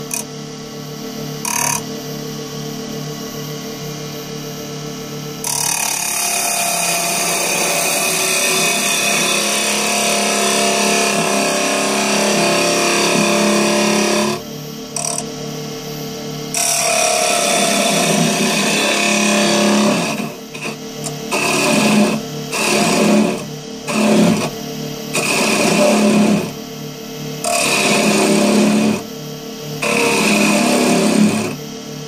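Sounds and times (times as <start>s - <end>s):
turning tool cutting wood: 0.0s - 0.3s, 5.4s - 15.3s, 16.5s - 26.6s, 27.4s - 29.1s, 29.8s - 31.6s
wood lathe humming: 5.4s - 15.2s, 16.5s - 26.6s, 27.4s - 29.1s, 29.8s - 31.6s.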